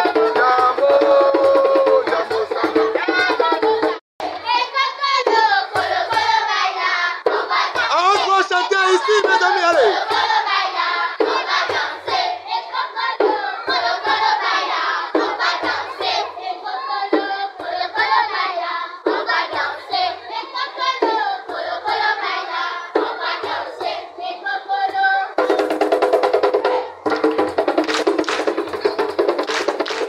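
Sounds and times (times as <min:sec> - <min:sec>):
rhythmic hand clapping: 0:00.0 - 0:20.1, 0:27.0 - 0:30.0
children singing: 0:02.0 - 0:25.7.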